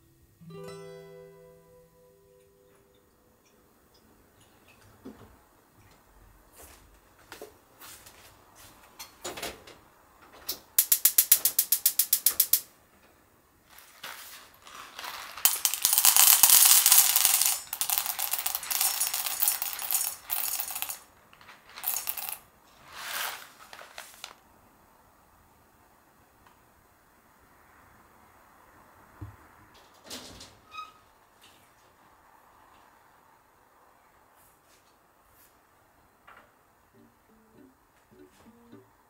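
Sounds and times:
coffee beans rattling into metal mug: 10.8 - 12.7, 13.7 - 24.4.

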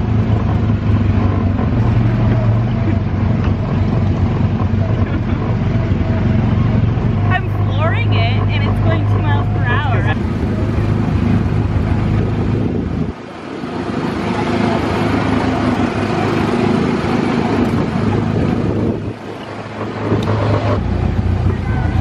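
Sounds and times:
small engine running: 0.0 - 12.7
wind buffeting microphone: 6.9 - 22.0.

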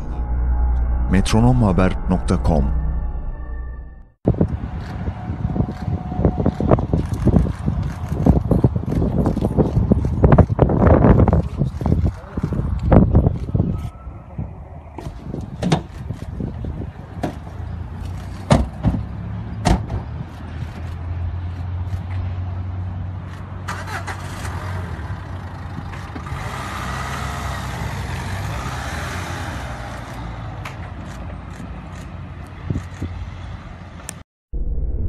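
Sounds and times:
car doors slamming: 18.5 - 19.0, 19.6 - 20.0.

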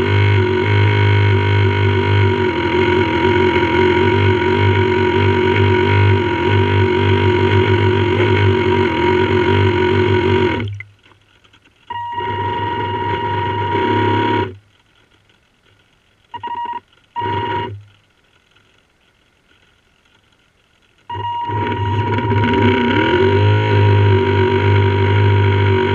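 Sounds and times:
model boat motor whining: 0.0 - 10.7, 11.9 - 14.6, 16.4 - 17.9, 21.1 - 25.9.

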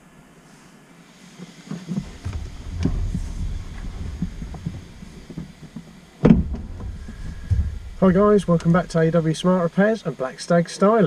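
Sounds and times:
body knocking against car seat: 6.2 - 8.0
heavy thud: 6.2 - 8.9.

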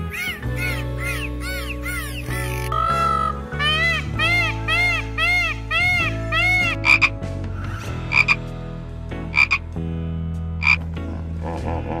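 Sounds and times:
dolphin squeaky chirps: 0.0 - 7.1.

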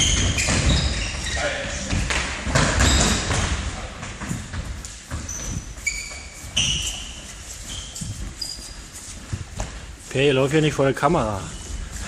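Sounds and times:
sports shoes squeaking on floor: 0.0 - 9.8
feet shuffling: 3.9 - 12.0.

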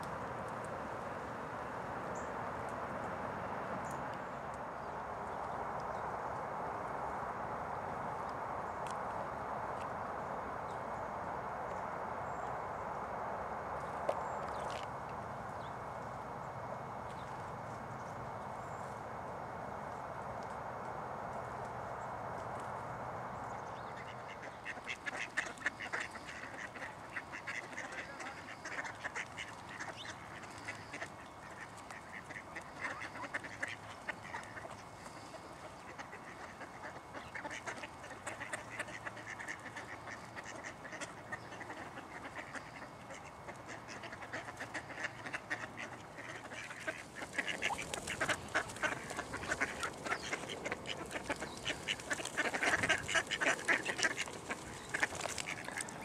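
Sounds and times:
ducks quacking: 23.6 - 56.0.

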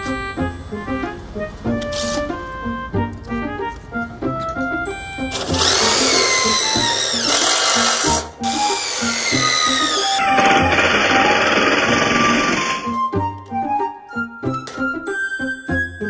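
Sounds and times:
background music: 0.0 - 16.0
cordless drill driving screws into metal: 5.3 - 12.8.

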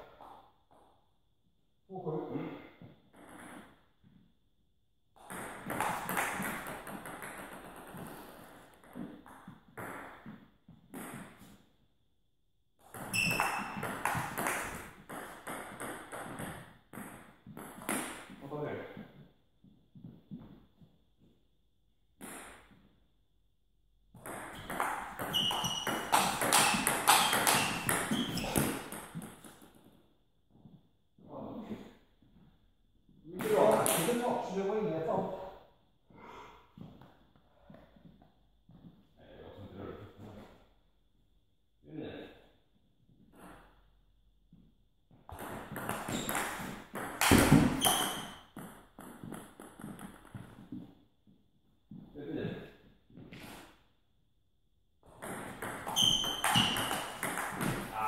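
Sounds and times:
footwork on floor: 17.1 - 21.4, 24.5 - 30.9, 36.7 - 39.2, 44.5 - 53.8
table tennis ball knocking: 24.2 - 29.6, 55.1 - 57.9.

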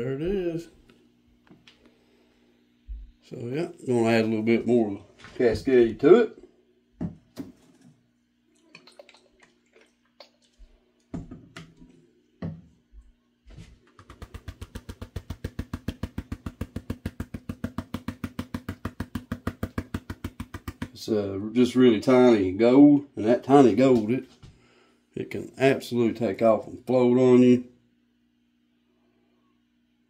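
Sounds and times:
hand stirring water in a tub: 7.1 - 12.8, 13.8 - 21.0.

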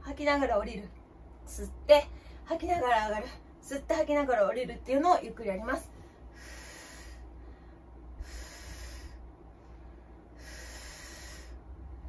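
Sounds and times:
woman breathing deeply: 6.0 - 12.0.

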